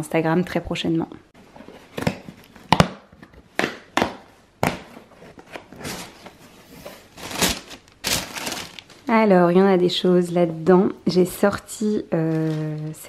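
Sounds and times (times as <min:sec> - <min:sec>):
tissue paper rustling: 0:05.2 - 0:09.1.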